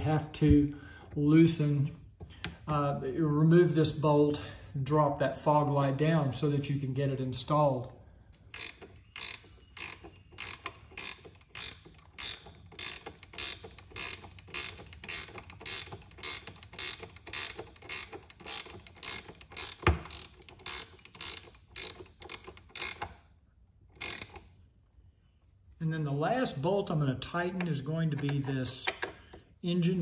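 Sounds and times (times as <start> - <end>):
socket ratchet clicking: 8.4 - 23.2, 23.9 - 24.6.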